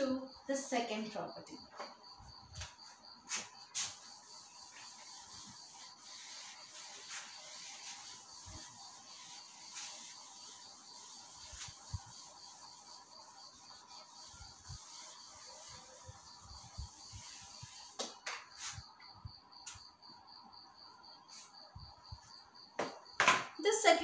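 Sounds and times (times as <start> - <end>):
eraser rubbing on whiteboard: 3.3 - 18.8
sharp knocks: 22.8 - 23.5.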